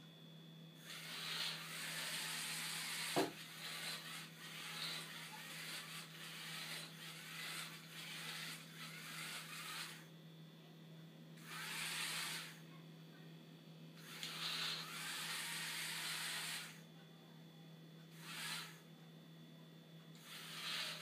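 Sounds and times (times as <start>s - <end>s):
small motors whirring: 0.8s - 10.2s, 11.4s - 12.7s, 14.0s - 16.9s, 18.1s - 18.9s, 20.2s - 21.0s.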